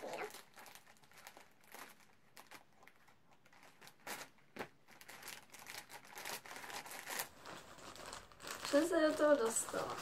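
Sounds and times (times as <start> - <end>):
packaging rustling and crinkling: 0.0 - 10.0.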